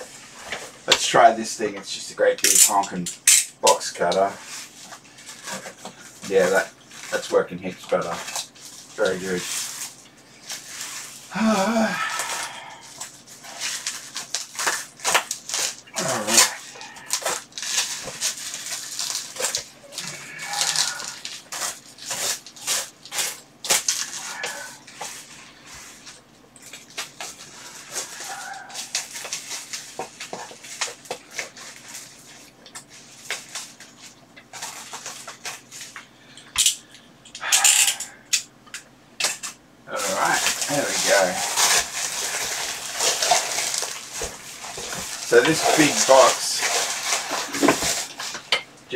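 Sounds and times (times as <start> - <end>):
plastic wrapping crinkling and tearing: 0.2 - 38.4, 39.2 - 48.9
box cutter slicing plastic wrap: 40.4 - 48.4.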